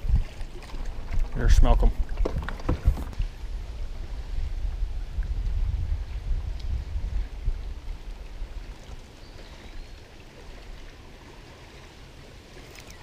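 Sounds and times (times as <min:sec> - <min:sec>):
wind rumbling on microphone: 0:00.0 - 0:11.8
water lapping: 0:00.0 - 0:13.0.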